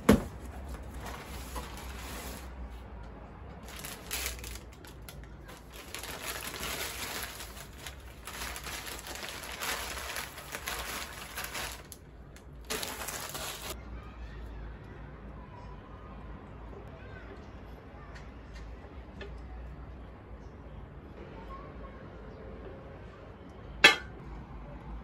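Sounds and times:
paper wrapping rustling: 0.0s - 2.6s, 3.6s - 13.8s.

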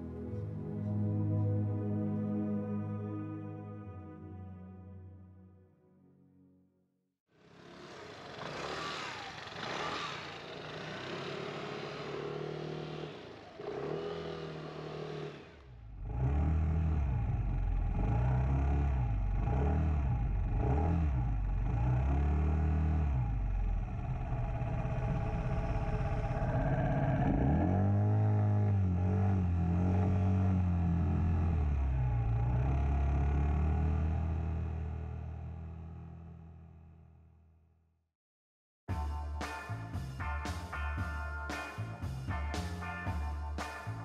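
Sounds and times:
scooter engine revving: 7.4s - 35.5s
rushing noise: 24.2s - 28.0s.

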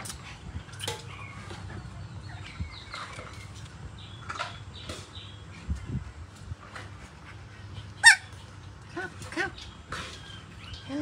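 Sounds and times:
puppies squeaking and whimpering: 7.8s - 8.4s.

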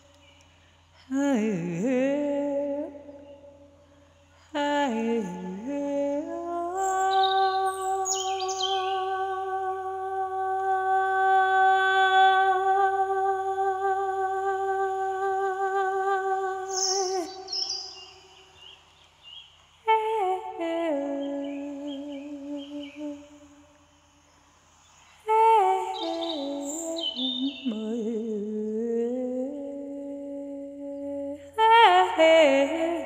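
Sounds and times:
small birds chirping: 0.0s - 1.0s, 6.7s - 9.4s, 16.4s - 20.0s, 21.1s - 28.2s
person humming: 1.0s - 3.5s, 4.4s - 18.0s, 19.9s - 23.5s, 25.3s - 33.0s.

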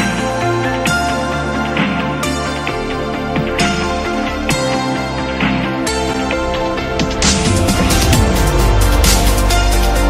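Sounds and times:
electronic dance music: 5.4s - 10.0s.

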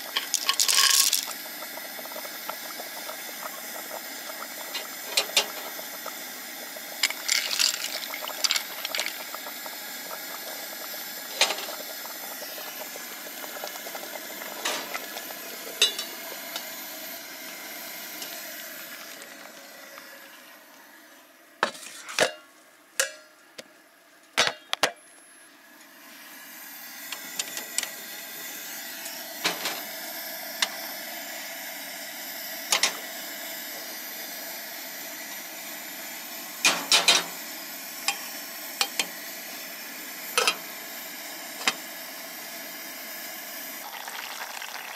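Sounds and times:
camp stove burner hissing: 0.0s - 22.0s, 25.9s - 44.9s.

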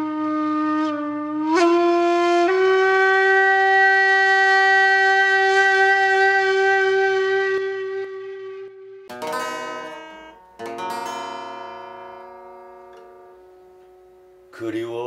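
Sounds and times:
reedy wind instrument held notes: 0.0s - 14.5s.

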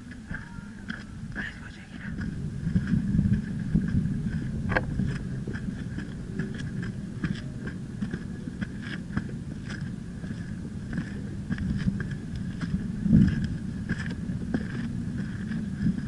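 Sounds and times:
footsteps on rocky dirt trail: 0.0s - 16.0s
wind on microphone: 0.0s - 16.0s.

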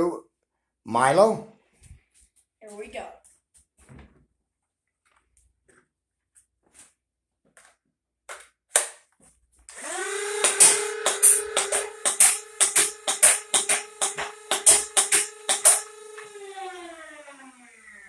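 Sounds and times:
blaster flywheels humming: 9.8s - 18.0s.

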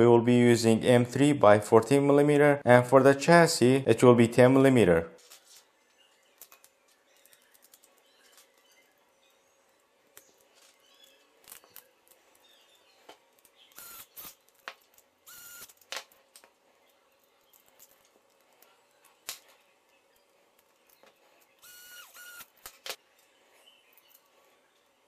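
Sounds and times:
small electric driver whirring: 13.7s - 14.4s, 15.2s - 15.8s, 21.5s - 22.9s.

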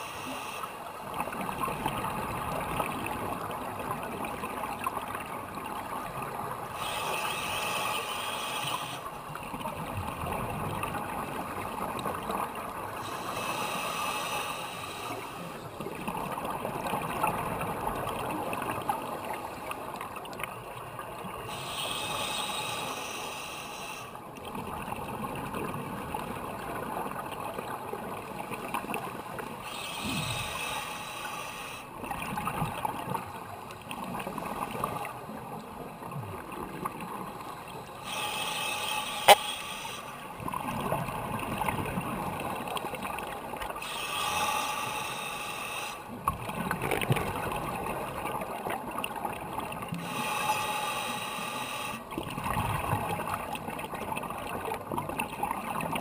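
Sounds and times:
regulator inhalation hiss: 0.0s - 0.8s, 6.8s - 9.1s, 13.0s - 15.5s, 21.5s - 24.2s, 29.6s - 31.9s, 38.0s - 40.2s, 43.8s - 46.1s, 50.0s - 52.1s.

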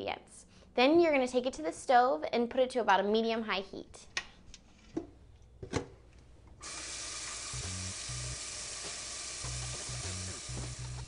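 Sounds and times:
water pouring into a pot: 6.6s - 11.0s.

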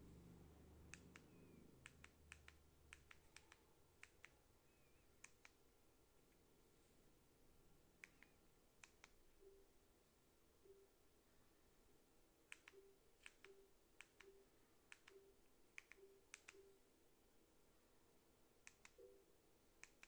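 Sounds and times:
remote control buttons clicking: 0.9s - 5.6s, 8.0s - 9.5s, 12.5s - 16.8s, 18.7s - 19.2s.

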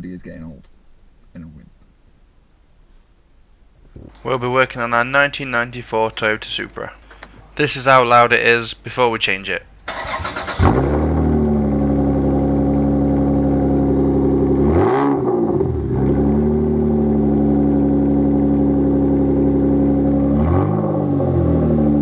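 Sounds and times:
car engine revving: 9.9s - 22.0s
car engine starting and idling: 9.9s - 22.0s.

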